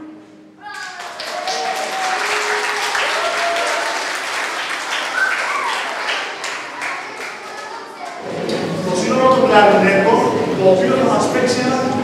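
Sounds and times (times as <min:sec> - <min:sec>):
audience applauding: 0:00.6 - 0:08.9.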